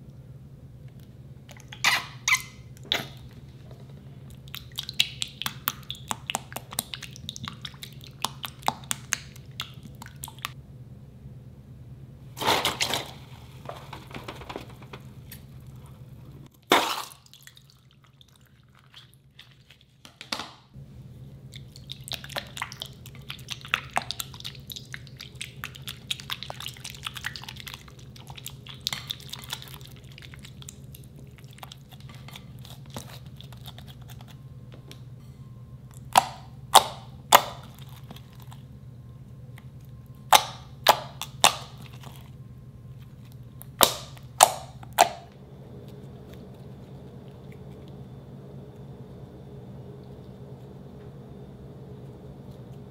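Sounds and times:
slime squelching: 4.2 - 10.6, 21.4 - 34.9, 35.9 - 38.8, 39.6 - 48.0.

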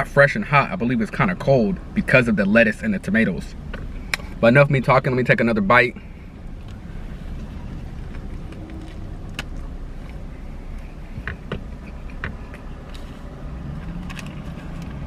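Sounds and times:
steady low hum: 0.0 - 15.0
quiet chewing: 6.4 - 15.0.

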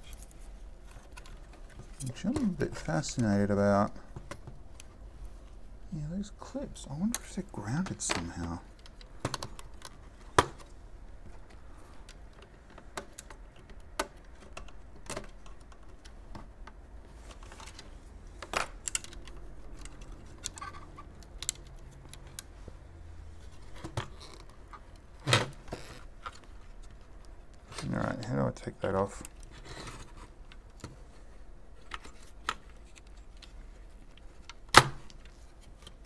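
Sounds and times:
modem parts clicking and knocking: 6.9 - 22.5.

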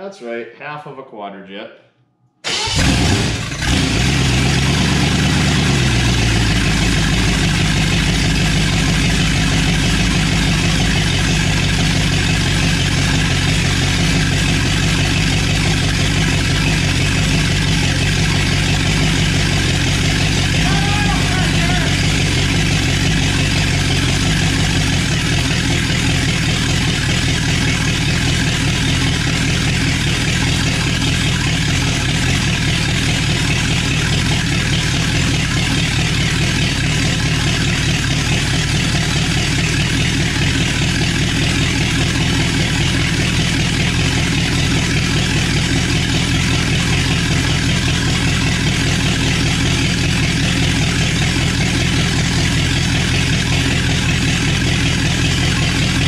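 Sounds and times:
loud engine idling: 2.4 - 56.0.

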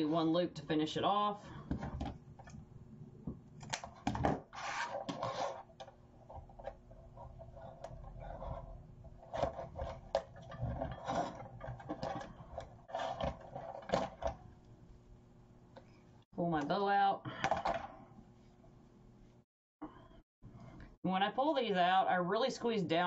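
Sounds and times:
clicks and scrapes: 3.6 - 14.4.

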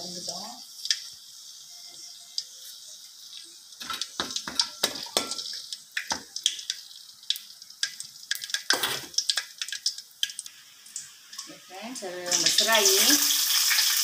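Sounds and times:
spices sizzling in hot oil: 0.0 - 14.0.

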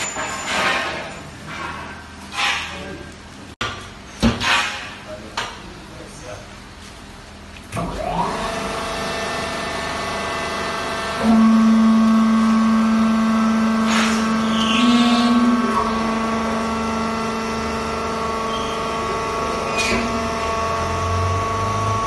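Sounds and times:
hydraulic power unit hum: 0.0 - 22.0
deeper steady machine tone: 8.0 - 22.0.

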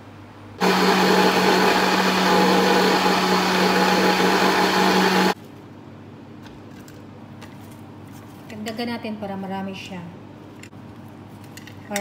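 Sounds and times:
blender running: 0.6 - 5.4.

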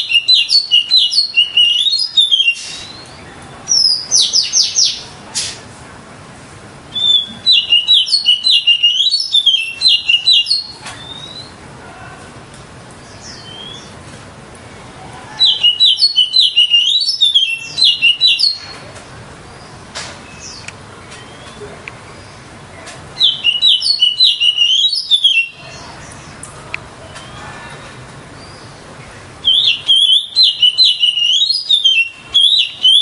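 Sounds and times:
bird singing high phrases: 0.0 - 5.1, 6.9 - 11.6, 13.0 - 14.0, 15.4 - 18.8, 19.5 - 22.5, 23.2 - 26.4, 28.4 - 33.0.

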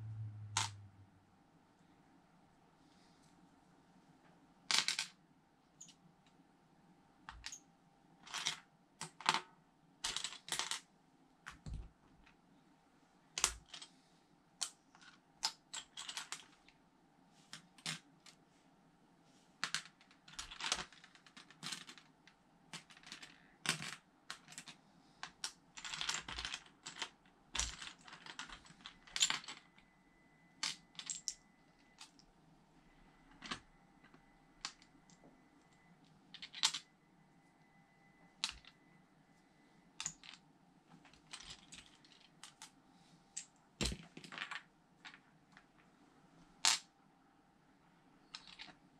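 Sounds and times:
plastic bricks clicking and clattering: 22.7 - 29.7, 48.3 - 48.8.

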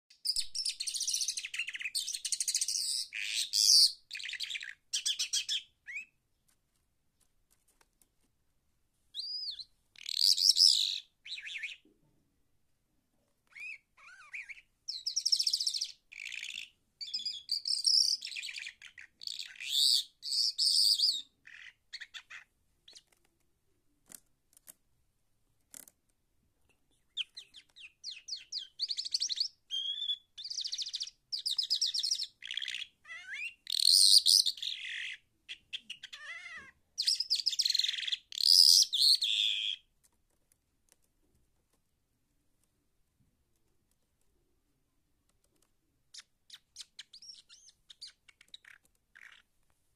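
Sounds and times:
lark singing: 0.2 - 6.2, 9.2 - 11.9, 13.5 - 22.5, 27.1 - 39.9, 46.2 - 49.4.

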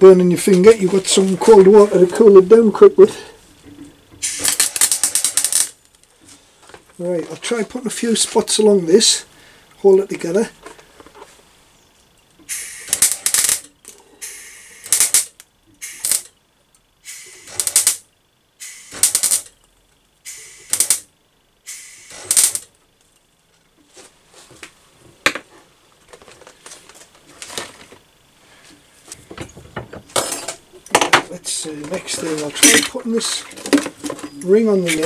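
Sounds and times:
welder crackling bursts: 4.2 - 6.1, 12.4 - 16.3, 17.0 - 19.6, 20.2 - 22.8.

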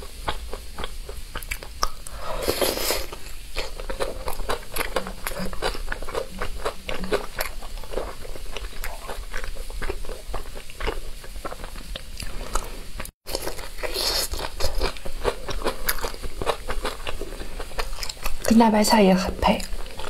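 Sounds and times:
biting and chewing food: 0.0 - 18.6.

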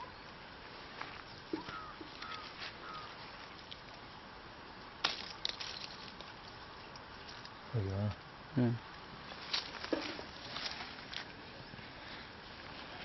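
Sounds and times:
leaves and twigs rustling: 0.4 - 13.0.

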